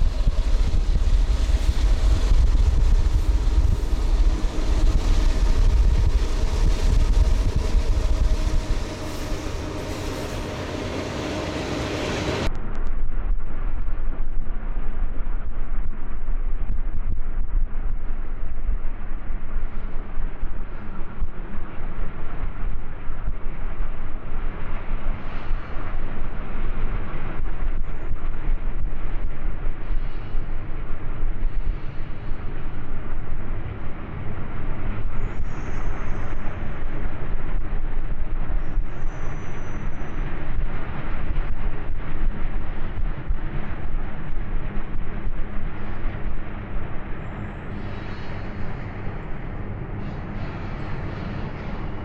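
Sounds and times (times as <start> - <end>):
freight locomotives rumbling past: 0.0 - 12.5, 34.0 - 52.0
faint high-pitched squeals: 35.0 - 41.7.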